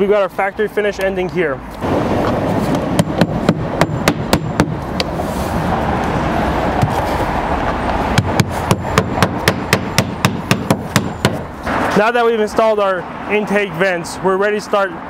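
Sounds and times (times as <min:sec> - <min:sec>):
hammer driving nails: 0:03.0 - 0:04.8, 0:08.2 - 0:11.4.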